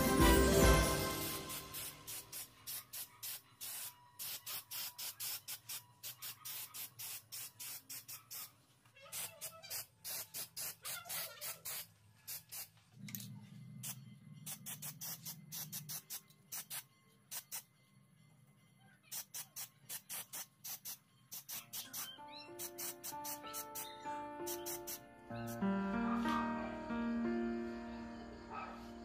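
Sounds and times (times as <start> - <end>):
aerosol spray bursts: 1.2 - 12.8, 13.8 - 17.6, 19.1 - 25.6.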